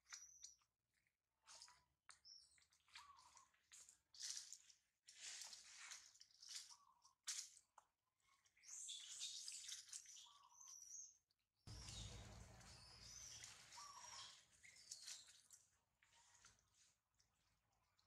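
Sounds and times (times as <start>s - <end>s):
monkeys chirping: 11.7s - 14.3s
rustling of twigs and leaves: 11.7s - 15.5s.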